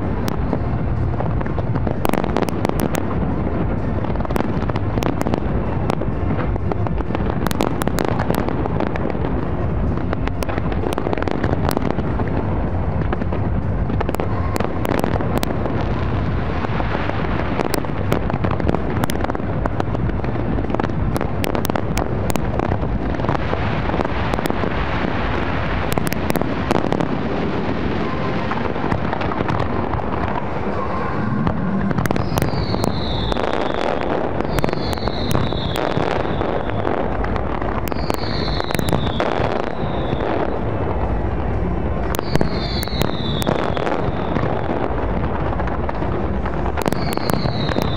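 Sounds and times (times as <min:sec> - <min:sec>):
fireworks crackling: 0:00.0 - 0:47.9
fireworks shell bursts rumbling: 0:00.0 - 0:47.9
falling firework whistles: 0:27.9 - 0:37.1, 0:37.8 - 0:40.6, 0:42.0 - 0:44.7, 0:46.8 - 0:47.9.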